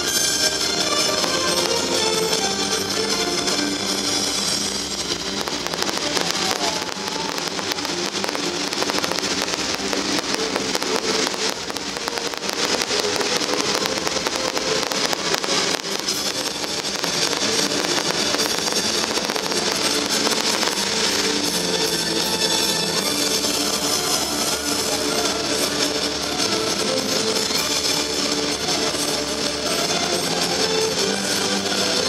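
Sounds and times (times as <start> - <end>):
firework crackling: 0.0 - 32.0
music playing: 0.0 - 32.0
firework shells bursting: 0.8 - 3.1, 3.8 - 22.0.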